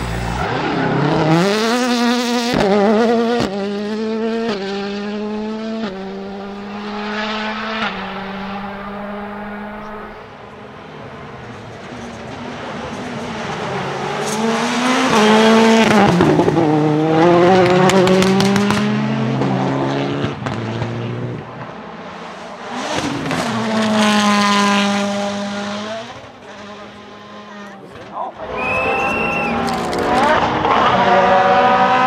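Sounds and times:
rally car engine revving: 0:00.0 - 0:10.2, 0:11.8 - 0:32.0
second car engine high revs: 0:00.0 - 0:10.2, 0:13.6 - 0:21.4, 0:29.2 - 0:32.0
engine crackles and pops: 0:17.6 - 0:18.9, 0:29.0 - 0:30.4.

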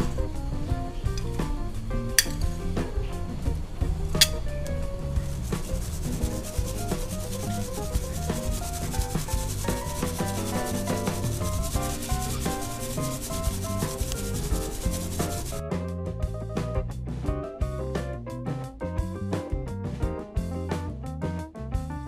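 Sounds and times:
background music: 0:00.0 - 0:22.0
metal mesh strainer rubbing: 0:02.2 - 0:02.6, 0:04.2 - 0:15.6.

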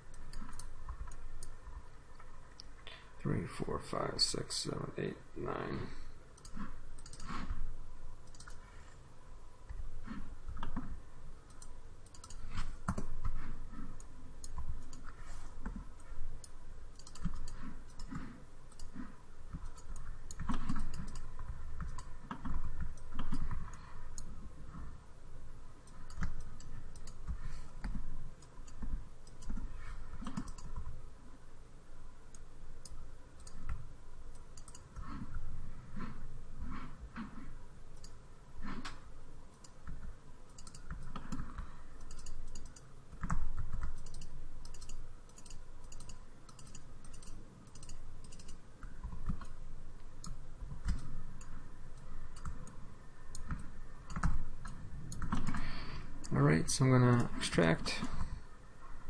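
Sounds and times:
mouse and keyboard clicks: 0:00.1 - 0:01.6, 0:06.4 - 0:07.6, 0:08.2 - 0:08.6, 0:09.7 - 0:24.4, 0:25.8 - 0:31.0, 0:32.3 - 0:49.6, 0:50.2 - 0:56.3.

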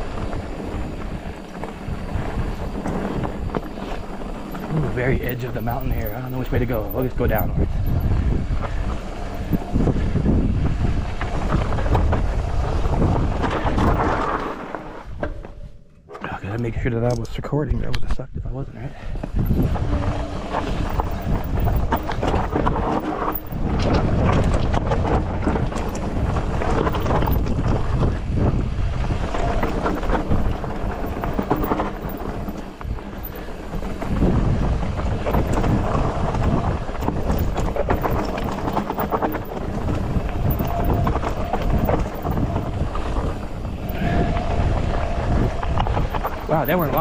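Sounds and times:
tyres crunching over gravel: 0:00.0 - 0:09.9, 0:29.0 - 0:44.2, 0:45.2 - 0:47.0
bike rattling and knocking: 0:00.0 - 0:15.8, 0:19.1 - 0:47.0
wind buffeting microphone: 0:00.0 - 0:47.0.

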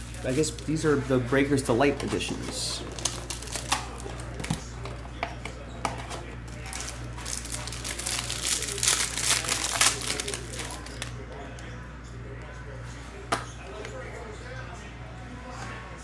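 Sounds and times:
foil wrapper crinkling: 0:02.8 - 0:04.4, 0:06.5 - 0:11.1.

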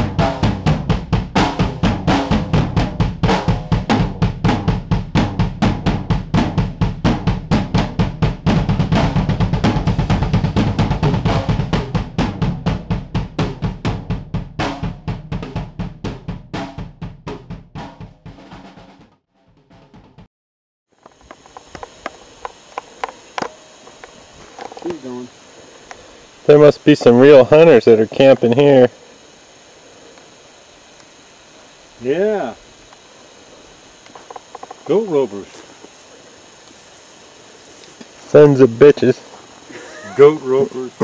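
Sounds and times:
drum-driven background music: 0:00.0 - 0:20.3.

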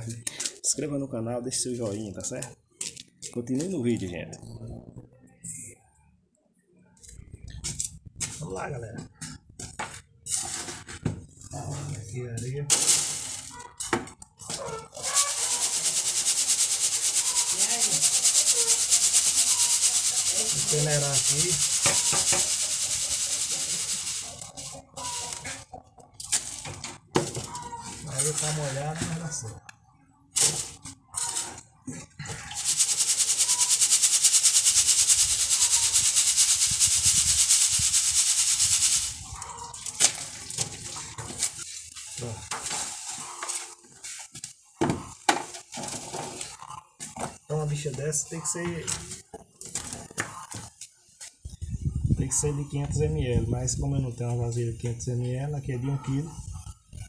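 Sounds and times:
sand hissing on sieve mesh: 0:15.0 - 0:24.5, 0:32.5 - 0:39.5.

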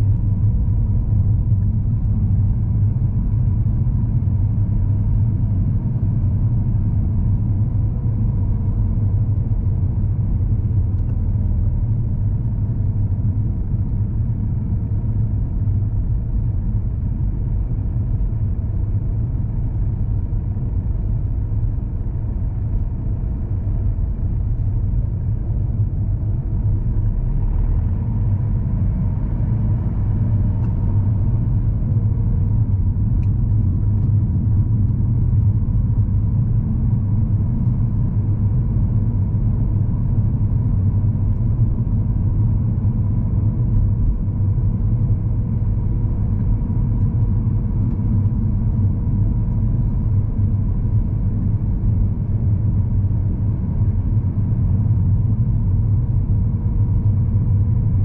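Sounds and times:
car engine rumble from inside: 0:00.0 - 0:58.0.

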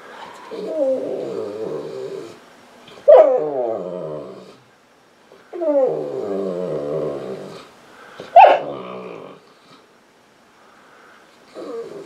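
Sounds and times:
dog crying in long moans: 0:00.3 - 0:02.4, 0:05.5 - 0:07.6.

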